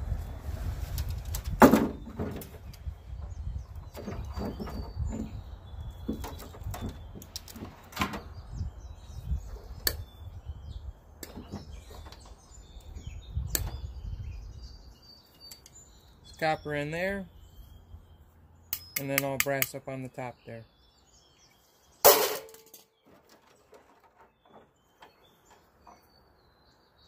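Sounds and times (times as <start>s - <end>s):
birds chirping faintly: 0.0s - 27.0s
wire cutters snipping: 18.7s - 19.8s.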